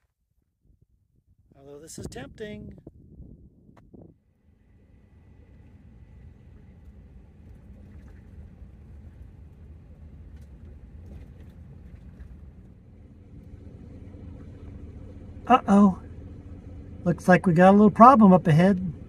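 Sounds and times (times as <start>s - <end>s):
van driving on gravel: 4.6s - 19.0s.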